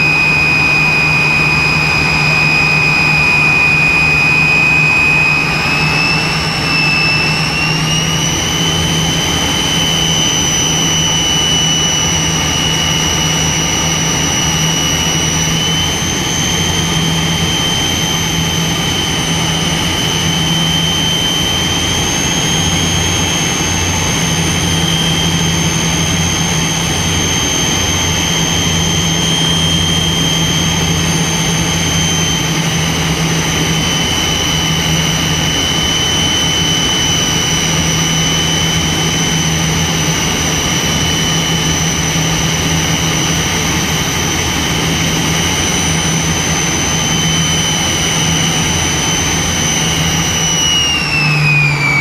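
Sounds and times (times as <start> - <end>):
jet engine high whine: 0.0 - 52.0
low pulsing hum: 0.0 - 52.0.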